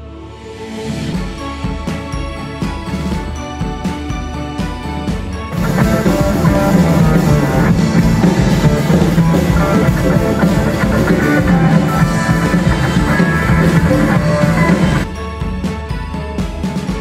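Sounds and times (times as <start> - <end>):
bass guitar: 0.9 - 17.0
drum kit: 0.9 - 17.0
electric guitars: 0.9 - 17.0.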